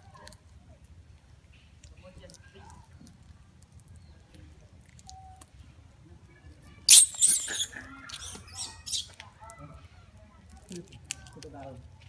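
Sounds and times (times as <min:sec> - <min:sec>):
monkeys screaming: 0:06.9 - 0:09.2.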